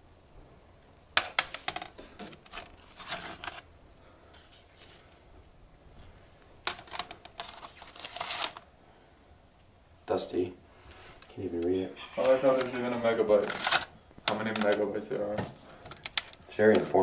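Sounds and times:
plastic cd cases clicking: 0:01.2 - 0:03.7, 0:06.6 - 0:08.6, 0:11.2 - 0:15.0, 0:15.8 - 0:16.9.

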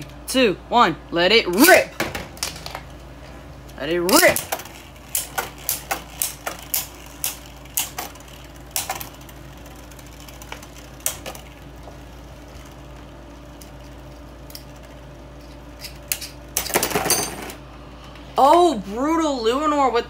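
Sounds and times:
spinning tops clacking together: 0:04.1 - 0:11.6.

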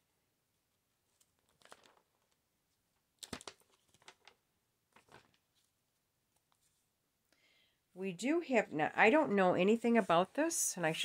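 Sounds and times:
paper pages rustling: 0:01.0 - 0:06.9.

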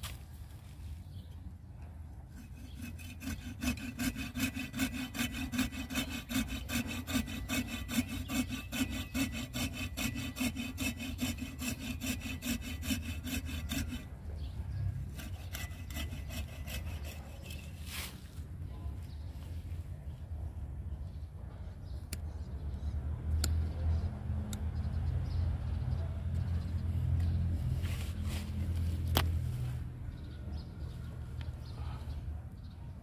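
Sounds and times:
hand saw cutting branch: 0:02.3 - 0:14.1, 0:15.1 - 0:18.2.

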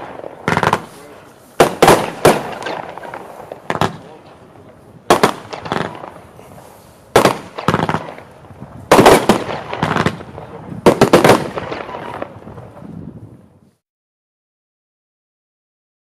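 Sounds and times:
small firework pops: 0:00.0 - 0:08.3
firework volleys of sharp bangs: 0:00.0 - 0:13.5.

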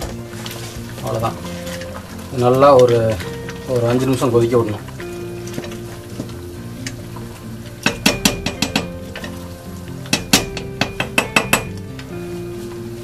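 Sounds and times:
soft background music: 0:00.0 - 0:13.0
spatula clinking against pot: 0:10.1 - 0:11.9.

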